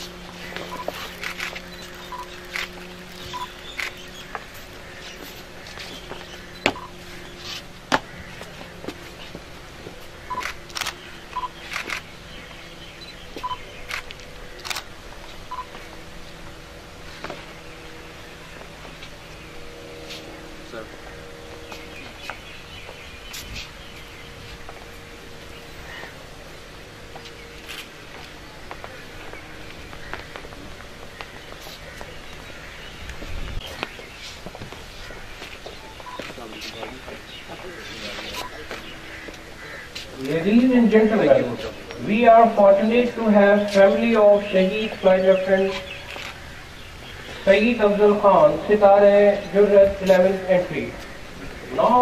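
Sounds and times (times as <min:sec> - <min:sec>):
birds chirping: 0:00.0 - 0:52.0
steady low hum: 0:00.0 - 0:52.0
camera shutters clicking: 0:00.6 - 0:04.0, 0:10.3 - 0:12.1, 0:13.5 - 0:14.9
short electronic beeps: 0:01.7 - 0:02.4, 0:03.3 - 0:03.5, 0:06.6 - 0:06.9, 0:13.0 - 0:13.6.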